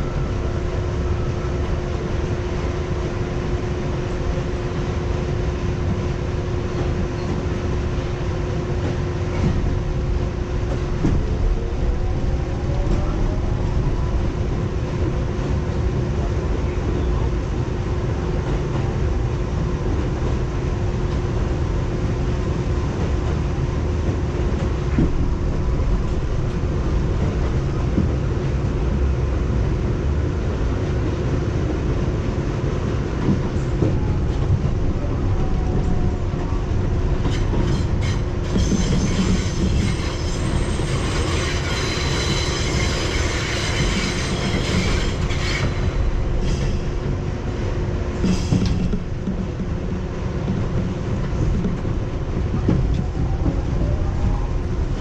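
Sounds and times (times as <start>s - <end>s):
subway train rumble: 0.0s - 55.0s
high-pitched wheel squeal: 37.2s - 46.0s.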